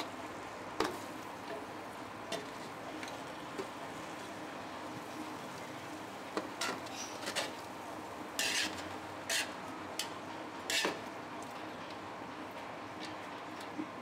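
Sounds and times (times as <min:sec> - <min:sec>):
metal spoon scraping a pot: 0:08.4 - 0:09.5.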